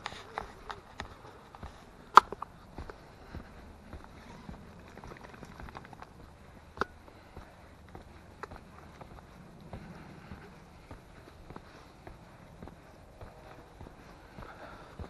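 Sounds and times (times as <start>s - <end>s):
footsteps on hard path: 0.0s - 15.0s.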